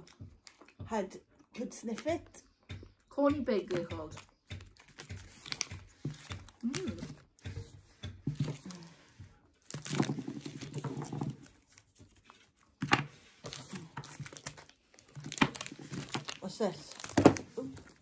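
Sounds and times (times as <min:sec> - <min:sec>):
chewing and crunching: 0:00.0 - 0:03.1
wrapper crinkling: 0:09.6 - 0:18.0.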